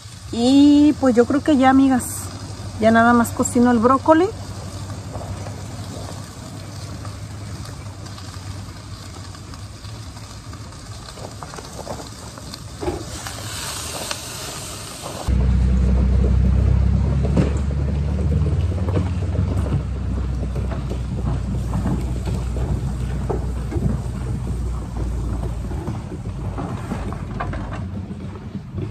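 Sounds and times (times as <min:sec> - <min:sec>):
low steady rumble: 0:00.0 - 0:13.1, 0:15.1 - 0:28.9
frying pan hissing: 0:00.0 - 0:15.4.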